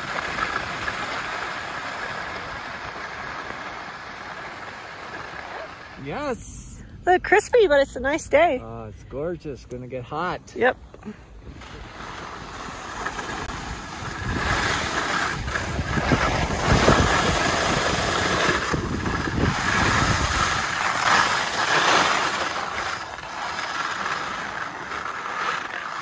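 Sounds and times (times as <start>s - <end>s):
skis scraping over snow: 0.0s - 6.4s, 9.6s - 26.0s
wind buffeting microphone: 11.3s - 21.4s.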